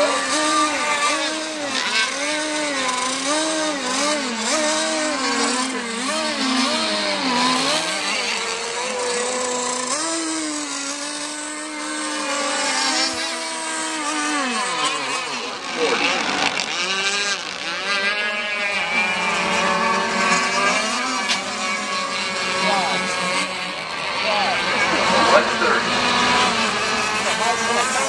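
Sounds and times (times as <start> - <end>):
model boat engines buzzing: 0.0 - 28.0.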